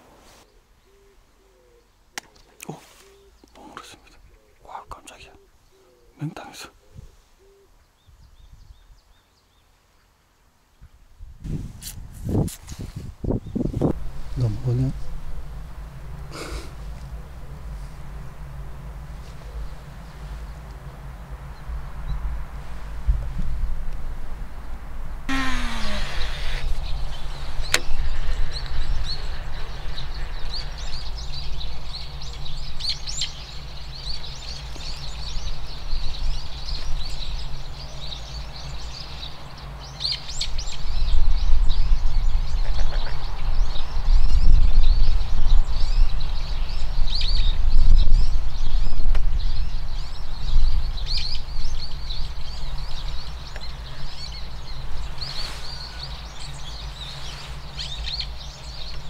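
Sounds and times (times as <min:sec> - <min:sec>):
small birds chirping: 0:00.4 - 0:10.9, 0:13.2 - 0:23.7, 0:25.3 - 0:59.0
low rumble: 0:13.7 - 0:37.7.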